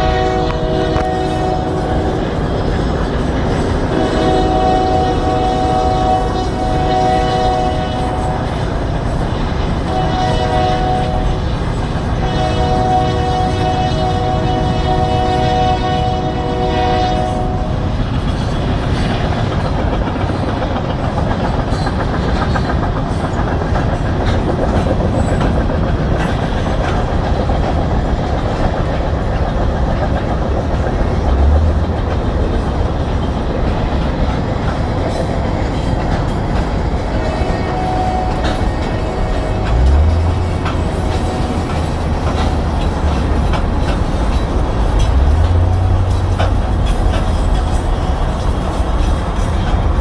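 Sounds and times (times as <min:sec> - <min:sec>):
train horn: 0:00.0 - 0:02.5, 0:03.6 - 0:09.2, 0:09.8 - 0:18.0, 0:36.9 - 0:47.9
train wheels rumbling over rails: 0:00.0 - 0:50.0.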